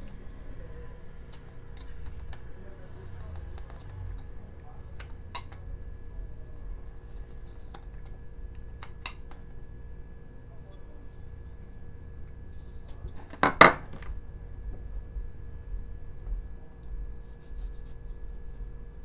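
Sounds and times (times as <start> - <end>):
knife clattering on wooden table: 13.2 - 14.1.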